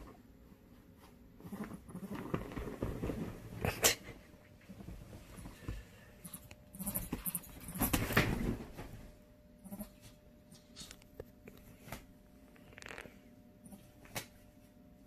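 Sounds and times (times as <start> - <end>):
bedding rustling: 0.0 - 9.3.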